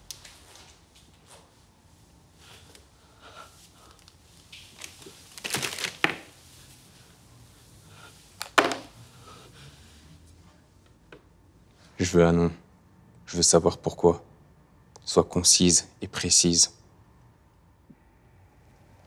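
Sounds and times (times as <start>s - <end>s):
crisp packet crinkling: 4.7s - 6.3s.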